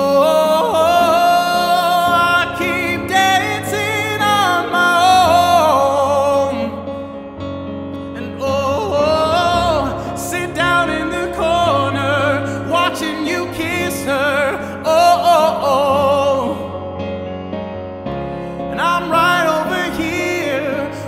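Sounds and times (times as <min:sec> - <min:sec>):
man singing wordless notes: 0:00.0 - 0:07.4, 0:08.0 - 0:17.2, 0:18.4 - 0:21.0
sustained low chords: 0:07.3 - 0:14.2.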